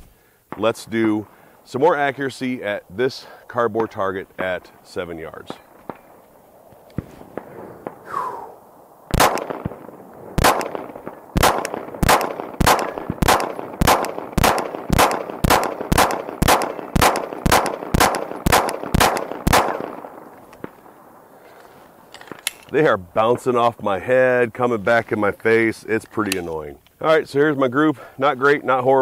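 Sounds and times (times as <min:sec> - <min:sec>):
pistol shots: 0:09.1 - 0:21.0.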